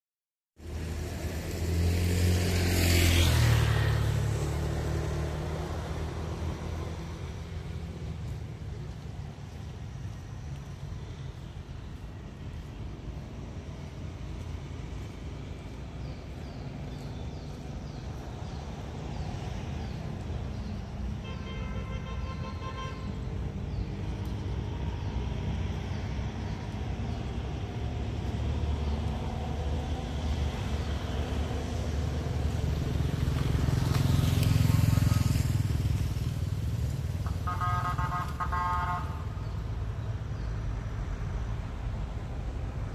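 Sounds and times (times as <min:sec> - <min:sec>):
passing vehicle engine rumbling: 0:00.6 - 0:42.9
vehicle horn beeps: 0:21.2 - 0:23.2, 0:37.3 - 0:39.3.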